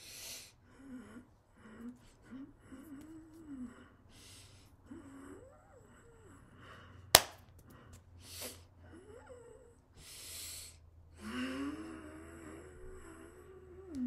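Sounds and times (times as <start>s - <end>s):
sharp smack: 7.2s - 7.4s.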